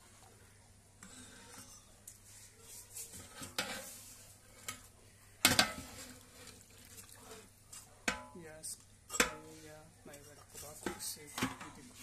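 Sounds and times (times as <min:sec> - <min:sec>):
utensil stirring in metal pot: 0:01.0 - 0:08.4
utensil clanking on pot: 0:03.2 - 0:08.4.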